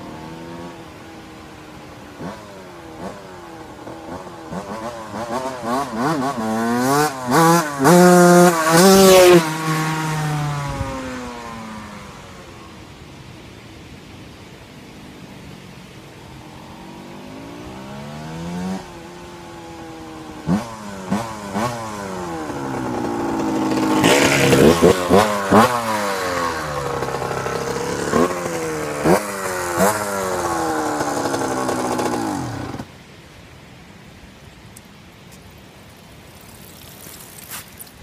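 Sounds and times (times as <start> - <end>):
motocross bike revving: 2.2 - 12.2, 16.2 - 32.9.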